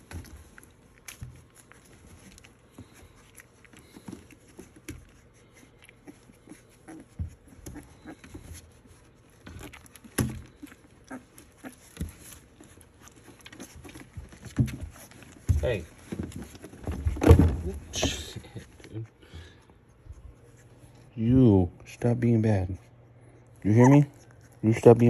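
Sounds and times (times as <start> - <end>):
puppies rustling on towels: 0.0 - 25.0
bumps in plastic tub: 14.3 - 18.4.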